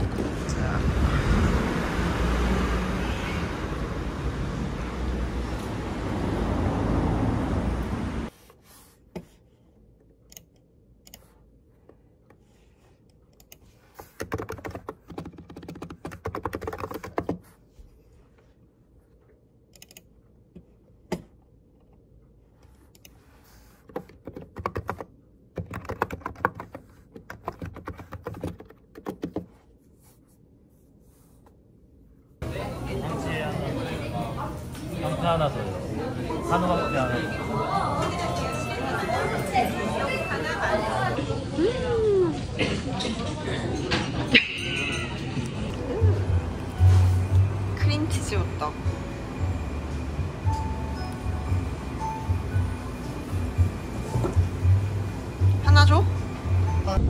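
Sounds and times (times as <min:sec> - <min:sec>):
street traffic: 0:00.0 - 0:08.3, 0:32.4 - 0:57.0
computer keyboard typing: 0:13.4 - 0:17.4, 0:23.8 - 0:29.5.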